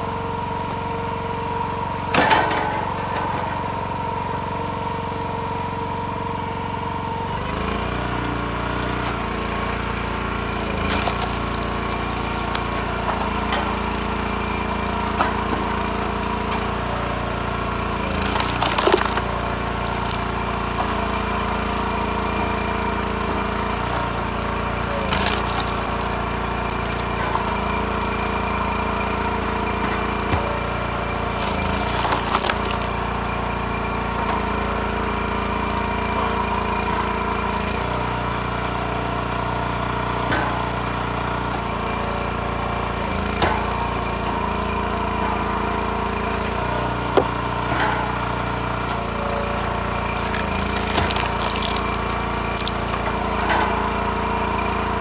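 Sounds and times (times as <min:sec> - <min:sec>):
log splitter engine running: 0:00.0 - 0:55.0
wood cracking and splintering: 0:07.4 - 0:33.5, 0:42.8 - 0:54.9.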